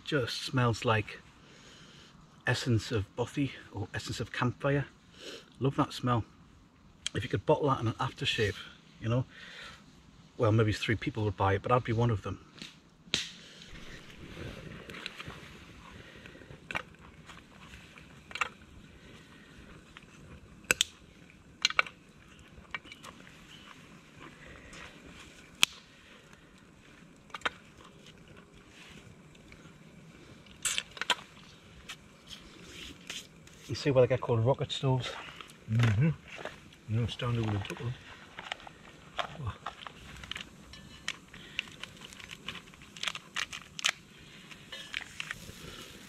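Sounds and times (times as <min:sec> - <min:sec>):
wood fire crackling: 0:00.0 - 0:46.0
dry twigs snapping: 0:12.6 - 0:15.4, 0:19.7 - 0:28.7, 0:30.4 - 0:33.6, 0:35.3 - 0:46.0.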